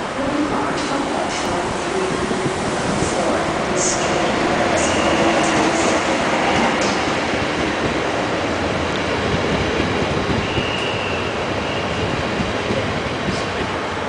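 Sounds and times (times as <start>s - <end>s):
train wheels rumbling on rail: 0.0s - 14.0s
high squeal: 10.3s - 12.1s.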